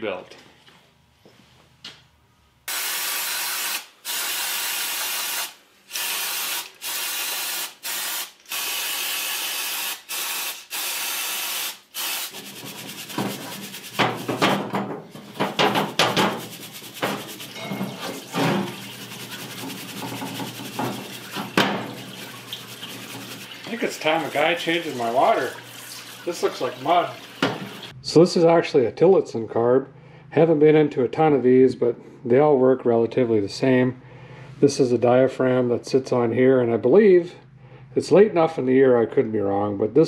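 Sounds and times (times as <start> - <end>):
aerosol spray hissing bursts: 2.7 - 13.9
brush scrubbing parts: 12.3 - 27.8.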